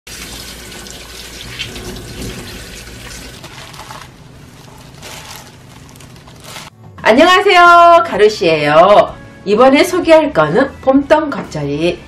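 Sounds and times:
tap water running into sink: 0.1s - 3.6s
leaves rustling: 3.2s - 6.7s.

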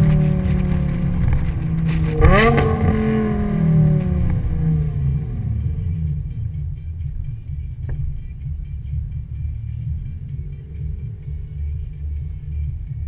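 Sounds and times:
car engine revving: 0.0s - 13.0s
low engine rumble: 0.0s - 13.0s.

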